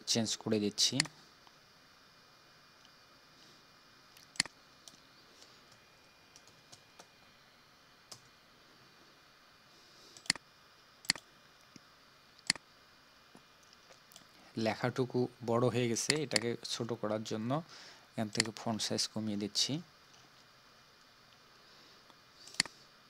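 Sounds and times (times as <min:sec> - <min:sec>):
computer mouse clicking: 0:04.2 - 0:05.0, 0:10.2 - 0:10.4, 0:11.0 - 0:11.3, 0:18.3 - 0:18.6, 0:22.4 - 0:22.7.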